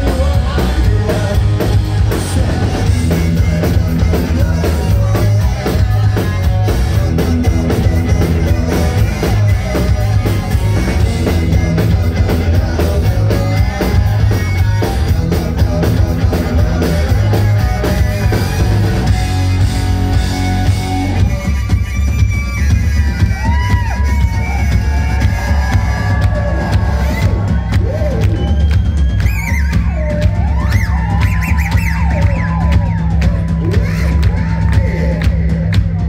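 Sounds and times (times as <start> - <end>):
rock band playing: 0.0 - 36.0
harmonica: 2.9 - 27.7.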